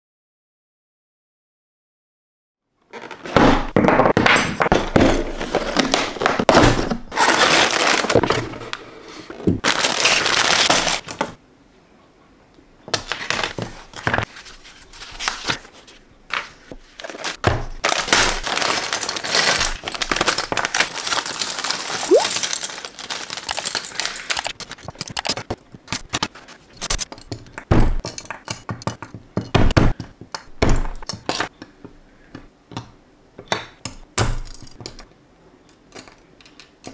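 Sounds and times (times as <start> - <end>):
plastic packaging rustling and tearing: 5.3 - 11.4, 13.1 - 27.1
plastic pieces clattering on table: 17.0 - 29.0.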